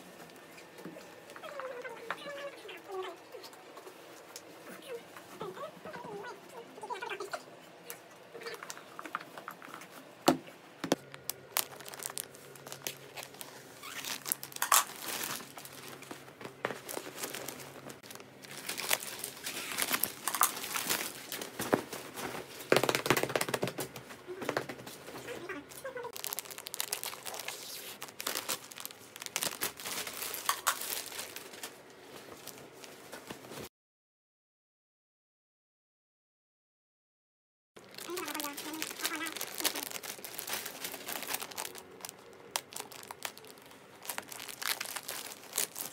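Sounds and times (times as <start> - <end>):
plastic packaging crinkling: 10.8 - 32.8, 37.8 - 45.9.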